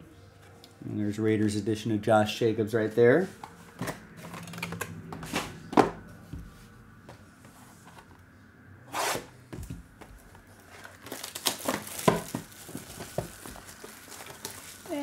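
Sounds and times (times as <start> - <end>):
cardboard and wrapper rustling: 9.9 - 15.0.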